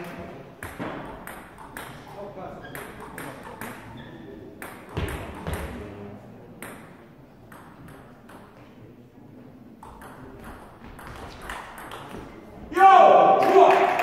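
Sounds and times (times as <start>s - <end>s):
table tennis ball clicks: 0.6s - 2.1s, 2.8s - 5.7s, 6.6s - 8.6s, 9.8s - 12.2s.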